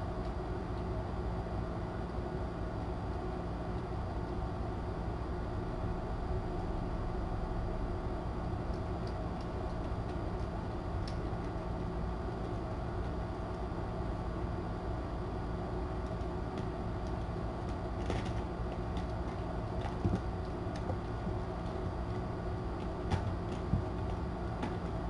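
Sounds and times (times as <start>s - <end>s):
room hum and hiss: 0.0s - 25.0s
kittens' faint clicks and scuffs: 8.7s - 13.6s, 16.0s - 25.0s.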